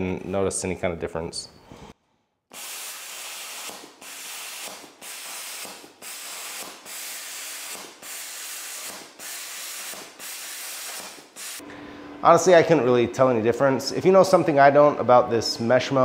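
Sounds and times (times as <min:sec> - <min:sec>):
plasma cutter hissing: 0:02.5 - 0:11.6.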